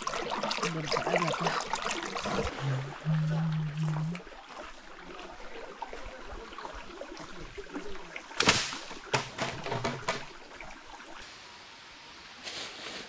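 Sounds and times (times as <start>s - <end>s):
footsteps on leaf litter: 12.4s - 13.0s.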